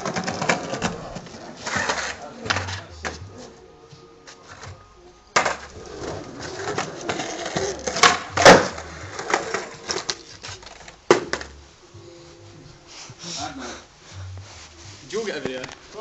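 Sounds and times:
skateboard wheels rolling on slabs: 0.0 - 3.4, 5.4 - 11.6
skateboard cracks: 5.4 - 5.8, 6.5 - 11.5.

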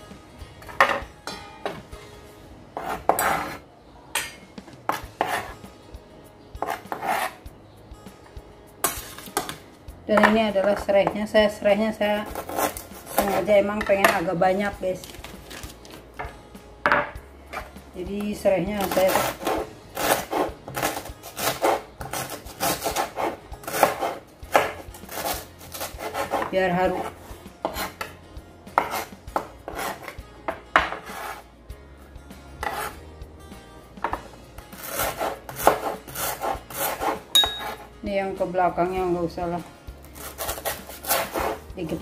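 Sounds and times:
knife scraping cutting board: 2.8 - 3.6, 4.9 - 5.6, 6.6 - 7.4, 12.2 - 13.6, 18.8 - 31.5, 32.6 - 33.0, 34.8 - 37.9, 40.1 - 41.7.

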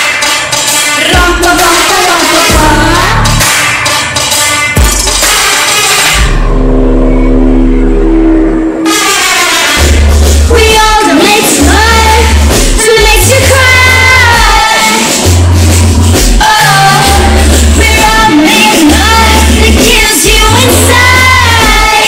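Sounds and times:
woman singing pop music: 0.8 - 3.6, 10.4 - 22.0
deep bass beat: 1.1 - 1.7, 2.5 - 3.6, 6.2 - 8.8, 9.8 - 11.0, 11.6 - 22.0.

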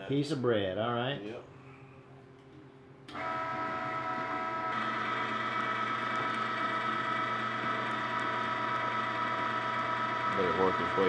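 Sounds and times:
electric meat grinder motor whine: 3.1 - 11.0.

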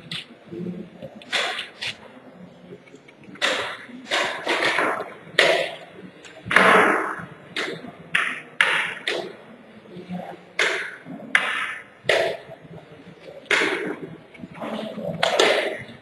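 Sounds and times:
sharp knocks echoing in hall: 1.2 - 2.2, 3.4 - 9.6, 10.5 - 16.0.

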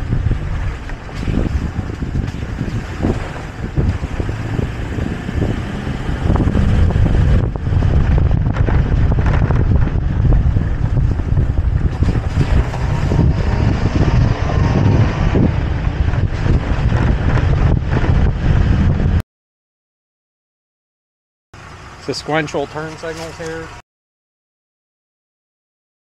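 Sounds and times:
pickup truck rumbling: 0.0 - 19.2, 21.6 - 23.8
wind buffeting microphone: 0.0 - 19.2
tyres over dirt and stones: 0.4 - 6.2.

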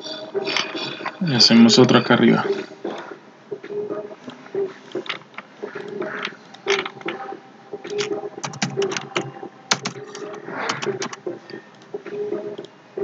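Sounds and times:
keyboard keystrokes: 7.8 - 11.9.

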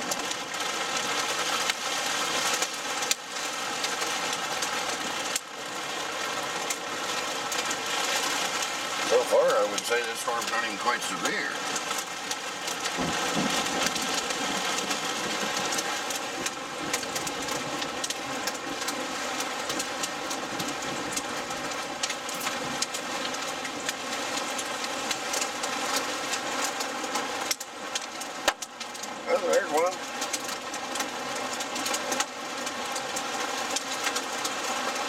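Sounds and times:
hailstones striking car: 0.0 - 35.0
heavy rain on car roof: 0.0 - 35.0.

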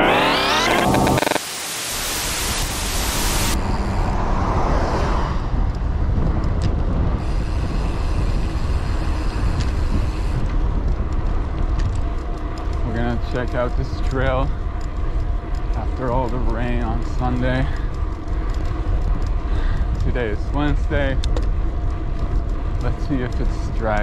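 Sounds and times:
harsh static: 0.0 - 3.6
bicycle road noise: 0.0 - 24.0
wind rush on camera: 2.0 - 24.0.

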